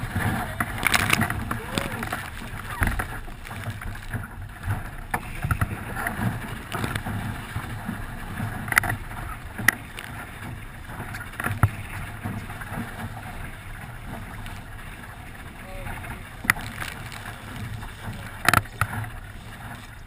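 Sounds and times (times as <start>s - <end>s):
hull slapping waves: 0.0s - 20.0s
water rushing along hull: 0.0s - 20.0s
wind on microphone: 0.0s - 20.0s.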